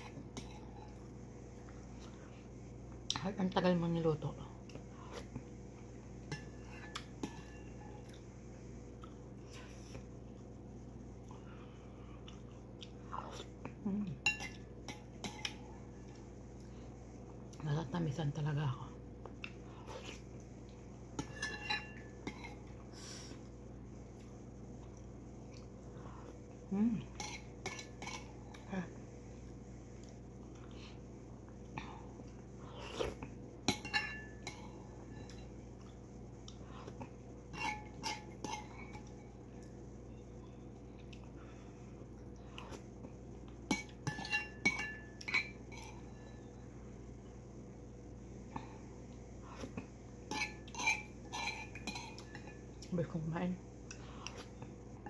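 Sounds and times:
metal spoon clinking on ceramic bowl: 0:14.2 - 0:15.5, 0:21.2 - 0:22.6, 0:33.7 - 0:35.5, 0:43.7 - 0:46.4, 0:50.3 - 0:52.6
spoon scraping ceramic bowl: 0:50.3 - 0:52.6.

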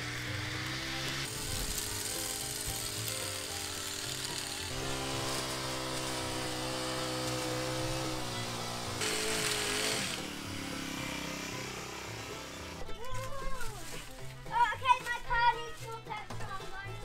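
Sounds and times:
hedge trimmer running: 0:00.0 - 0:13.0
music with held chords: 0:00.0 - 0:17.0.

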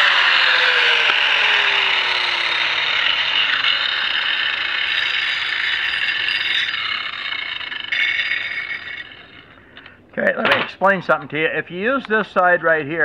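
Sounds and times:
angle grinder grinding steel: 0:00.0 - 0:10.0.

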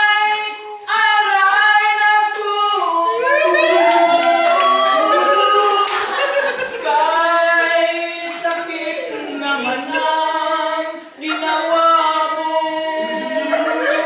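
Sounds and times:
men singing a cappella: 0:00.0 - 0:14.0
sharp claps: 0:03.8 - 0:06.3.

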